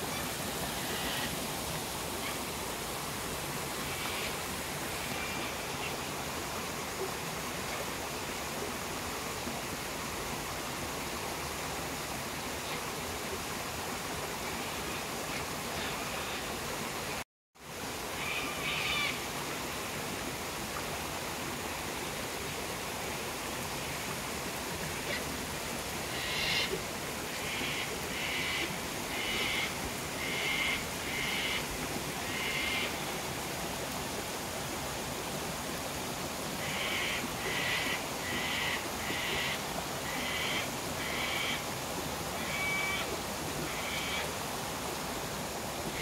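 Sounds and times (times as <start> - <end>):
waterfall rushing: 0.0 - 11.6.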